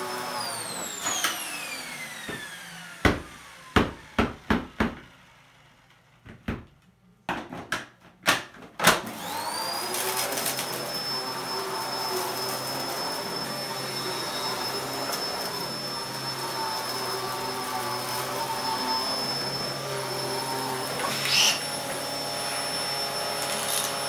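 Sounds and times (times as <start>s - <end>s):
vacuum motor whine: 0.0s - 4.2s, 9.0s - 24.0s.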